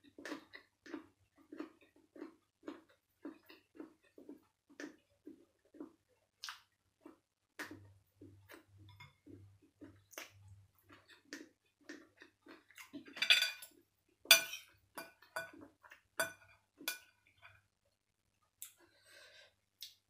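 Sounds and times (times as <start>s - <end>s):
quiet eating sounds: 0.0s - 20.0s
cutlery clinking on ceramic plates: 13.1s - 13.7s, 14.3s - 15.6s, 16.2s - 17.6s.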